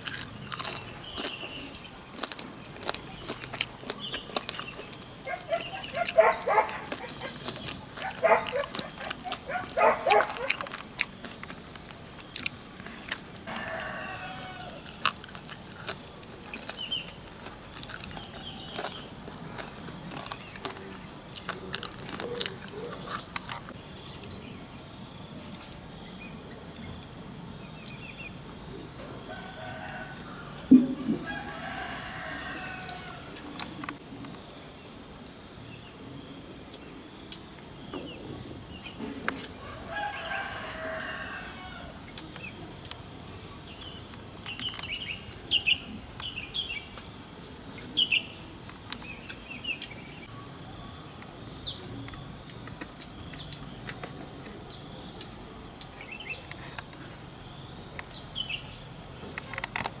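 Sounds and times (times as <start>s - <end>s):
chickens clucking and chirping: 0.1s - 11.2s
rooster crowing: 13.4s - 14.9s, 29.2s - 33.4s, 39.6s - 42.0s.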